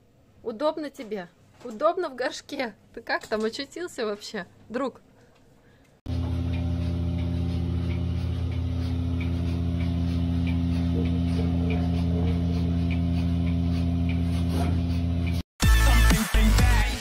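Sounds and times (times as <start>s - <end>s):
faint regular ticking: 5.9s - 14.2s
mechanical hum: 6.1s - 15.4s.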